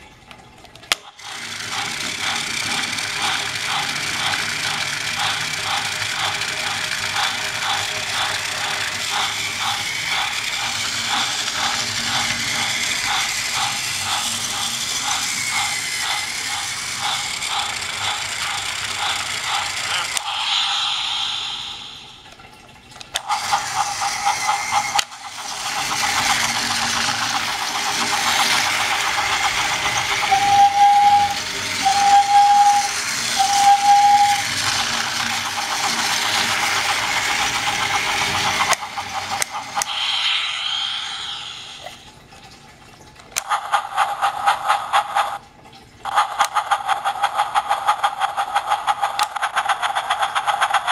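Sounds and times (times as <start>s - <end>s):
toy train motor whine: 1.0s - 22.2s, 23.1s - 42.1s, 46.1s - 50.9s
high toy train toots: 1.2s - 22.1s, 23.2s - 42.0s.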